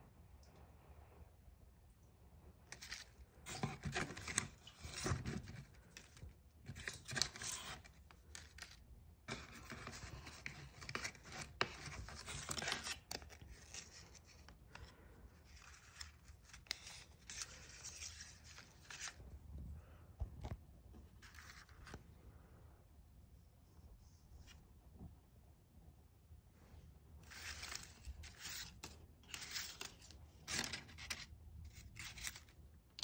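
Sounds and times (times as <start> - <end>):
paper envelopes crinkling: 2.7 - 19.2, 27.2 - 33.0.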